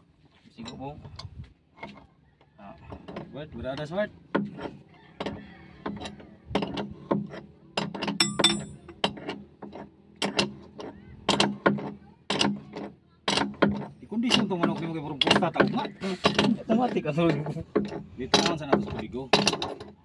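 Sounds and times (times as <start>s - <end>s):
metal clicks and knocks: 2.9s - 20.0s
metallic ring: 7.8s - 10.4s.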